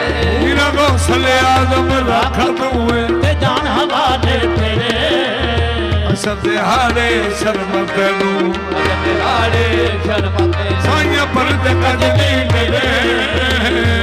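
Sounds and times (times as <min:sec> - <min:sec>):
wordless vocal glides: 0:00.0 - 0:02.9
harmonium melody: 0:00.0 - 0:14.0
tabla beat: 0:00.0 - 0:14.0.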